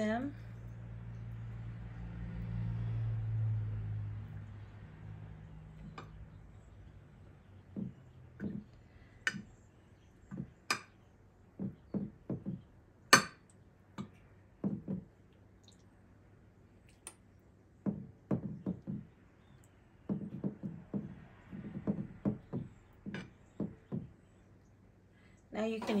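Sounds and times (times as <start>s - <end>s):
soft dull knocks: 7.3s - 9.5s, 10.3s - 10.9s, 11.6s - 12.7s, 14.0s - 15.2s, 17.8s - 19.2s, 20.1s - 24.2s.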